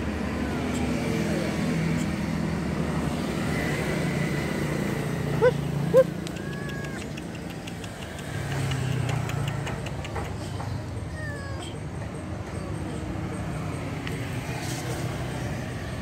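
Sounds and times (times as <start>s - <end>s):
kitten meowing: 5.4s - 7.3s.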